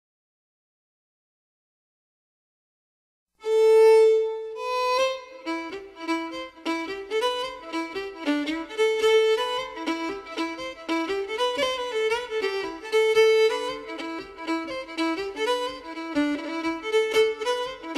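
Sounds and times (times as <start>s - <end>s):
fiddle music: 3.4s - 17.9s.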